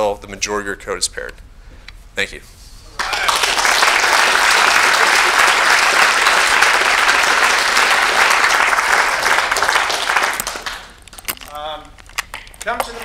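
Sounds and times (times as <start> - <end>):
audience applauding: 3.0 - 11.1.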